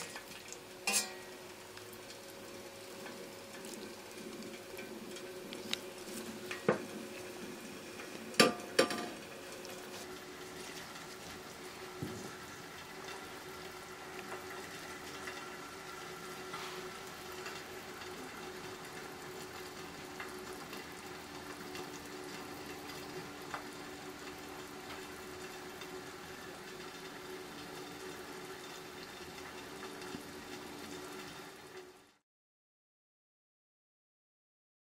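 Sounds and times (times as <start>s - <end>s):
soup bubbling: 0.0s - 32.0s
faint steady hum: 0.0s - 32.2s
metal ladle clinking on pot: 0.8s - 1.3s.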